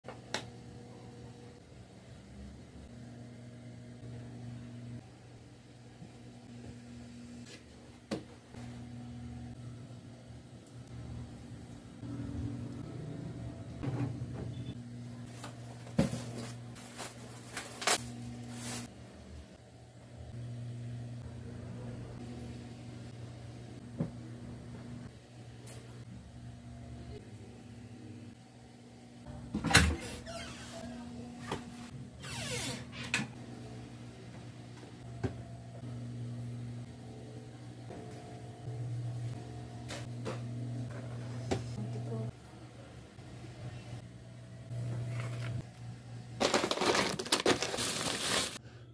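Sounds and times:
plastic bag rustling: 15.3 - 18.9, 46.4 - 48.6.

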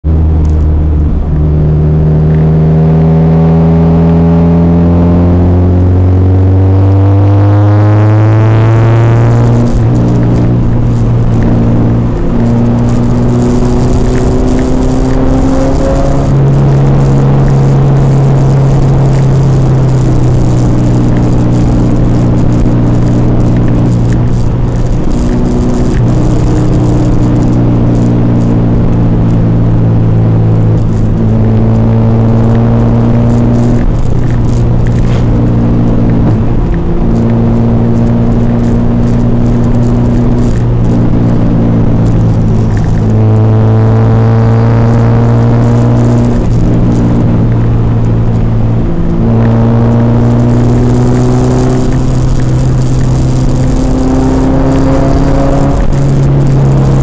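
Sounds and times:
car engine from inside cabin: 0.0 - 57.0.

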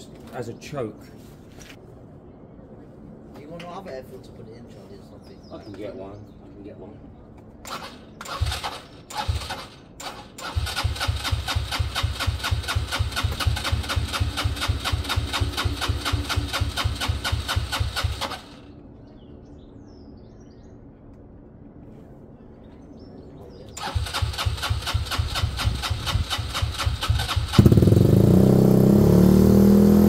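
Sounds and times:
scooter engine cranking: 7.7 - 18.6, 23.8 - 29.4.

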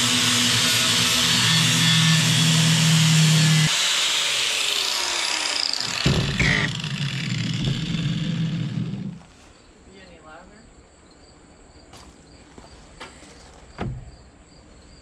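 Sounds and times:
angle grinder grinding metal: 0.0 - 9.3
sharp knock: 5.8 - 6.7.

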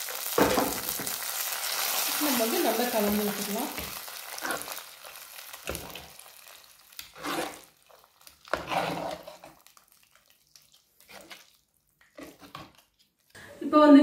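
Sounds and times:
ladle scraping in a pot: 7.0 - 7.7, 8.5 - 9.6, 11.0 - 13.0.

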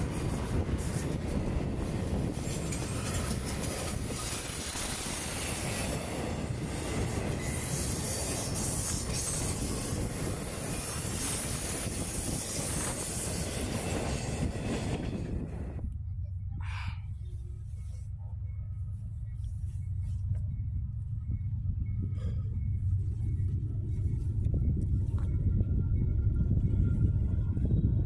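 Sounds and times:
freight train wheels clacking: 0.0 - 15.6
high wheel squeal: 6.8 - 15.1.

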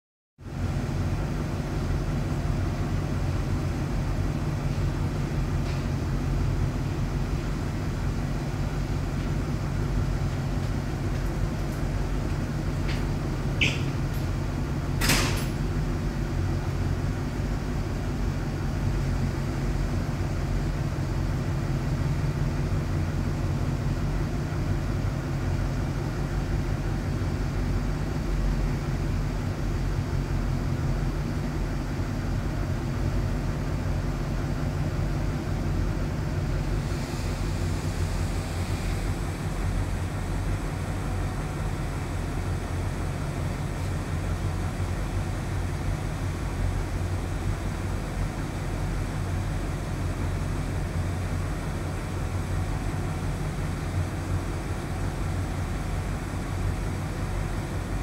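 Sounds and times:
ship engine drone: 0.4 - 58.0
short click: 13.6 - 13.9.

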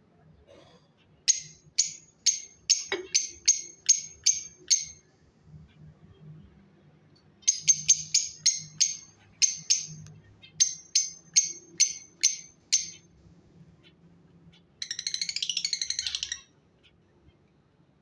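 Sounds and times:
lovebird chattering trill: 1.3 - 5.0, 7.4 - 13.1, 13.8 - 16.5
lovebirds chirping shrilly: 1.3 - 5.0, 7.4 - 13.1, 13.8 - 16.6.

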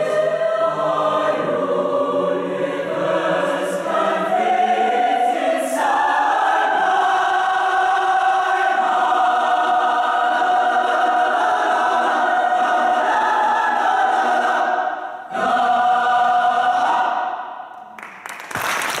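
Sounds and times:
mixed choir singing a cappella: 0.0 - 17.7.

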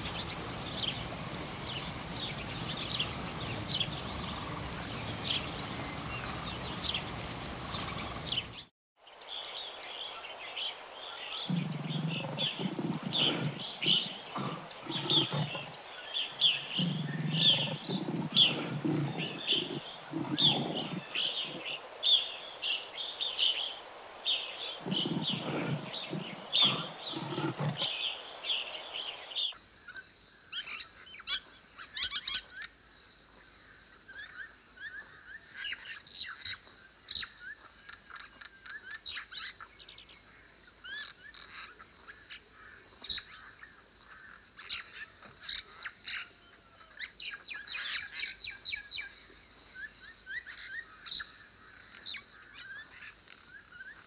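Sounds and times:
birds chirping and chattering: 0.0 - 8.7, 11.4 - 22.3, 24.3 - 28.5.

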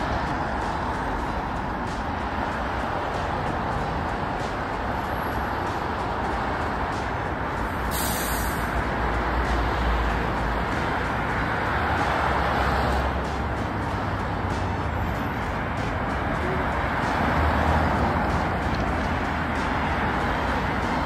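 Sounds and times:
city traffic hum: 0.0 - 21.0
short hiss: 7.9 - 8.7.

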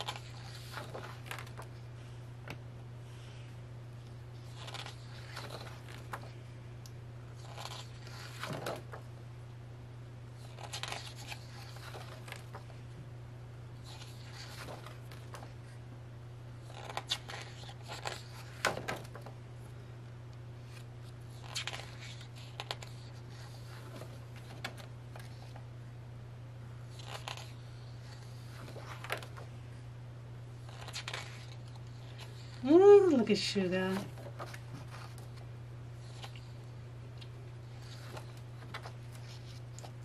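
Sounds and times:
paper pages rustling: 0.0 - 1.8, 4.4 - 6.4, 7.4 - 9.0, 10.4 - 12.8, 13.8 - 15.6, 16.6 - 19.3, 20.7 - 25.6, 26.9 - 29.5, 30.7 - 32.6, 33.9 - 36.5, 37.8 - 40.0
steady low hum: 0.0 - 40.0.

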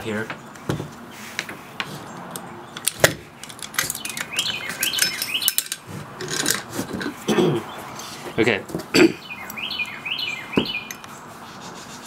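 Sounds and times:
birds chirping: 0.0 - 12.0
rifle metal clicks and scrapes: 1.2 - 7.2.

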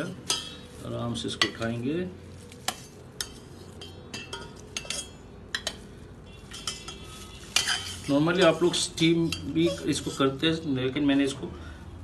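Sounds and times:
metal spoon clinking on pot: 0.2 - 0.7, 2.7 - 10.3.

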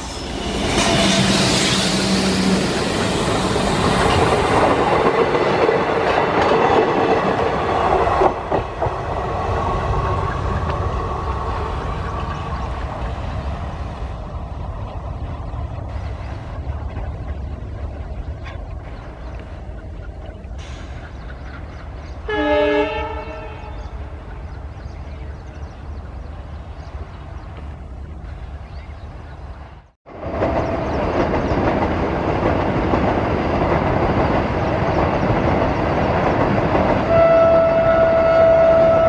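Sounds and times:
diesel locomotive engine running: 0.0 - 7.6.

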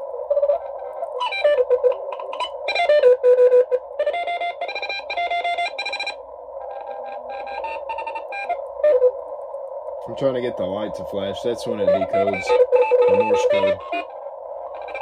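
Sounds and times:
receiver hiss: 0.0 - 15.0
morse code tones: 11.8 - 14.1.

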